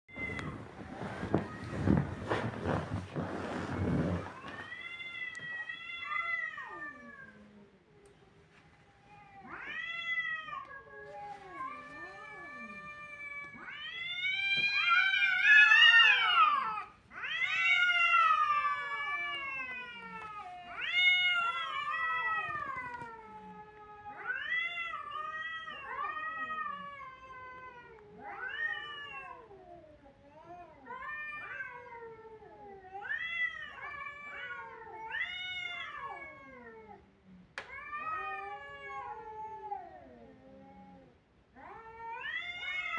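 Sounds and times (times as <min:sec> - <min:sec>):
cats yowling: 0:09.0 - 0:42.9.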